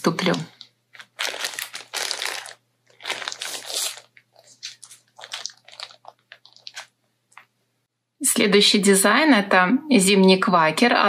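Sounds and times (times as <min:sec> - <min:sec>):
plastic packaging crinkling: 0:00.0 - 0:07.5.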